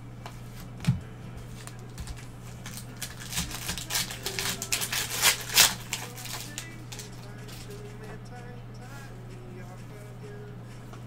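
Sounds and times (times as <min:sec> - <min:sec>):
foil pack tearing and crinkling: 0:01.6 - 0:07.8.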